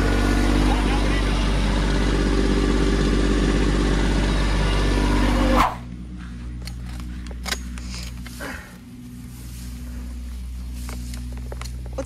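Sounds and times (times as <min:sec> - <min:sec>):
tractor engine idling: 0:00.0 - 0:12.0
rustling in tall grass: 0:07.1 - 0:12.0.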